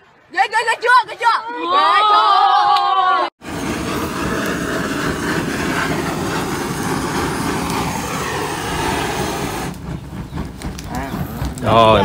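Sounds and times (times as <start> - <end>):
blowtorch flame rushing: 3.4 - 12.0.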